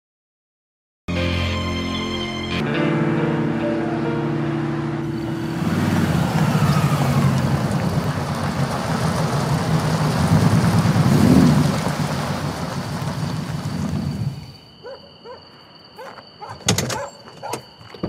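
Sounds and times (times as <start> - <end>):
car engine running: 4.5 - 14.6
tyres crunching on gravel: 5.2 - 14.8.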